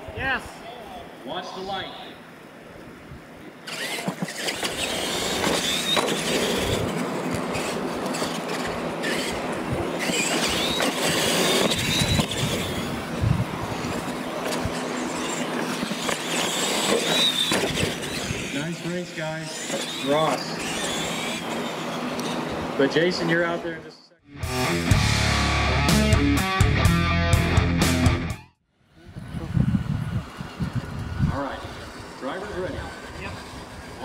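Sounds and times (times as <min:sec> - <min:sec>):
rc truck motors whining: 0:01.9 - 0:23.8, 0:28.8 - 0:34.0
trucks landing thumps: 0:03.7 - 0:13.0, 0:13.8 - 0:18.5.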